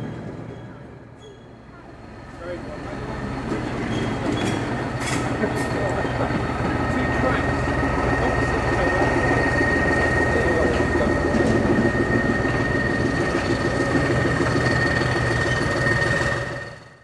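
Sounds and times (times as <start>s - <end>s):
diesel locomotive running: 0.0s - 17.0s
train wheels rolling on track: 0.0s - 17.0s
steady high whine: 4.6s - 17.0s.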